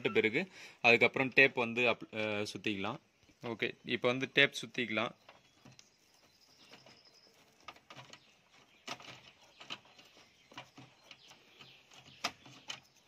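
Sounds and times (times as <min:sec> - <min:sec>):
wires being handled: 0:04.6 - 0:13.0.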